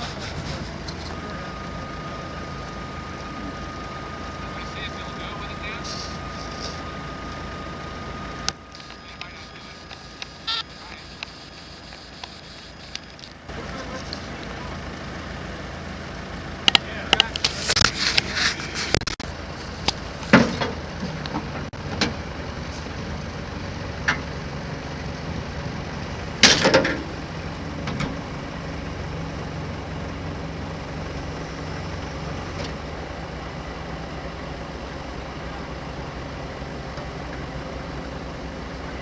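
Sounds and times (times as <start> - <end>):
diesel engines running: 0.0 - 39.0
metal knocks and clanks: 20.2 - 22.2, 26.4 - 27.1.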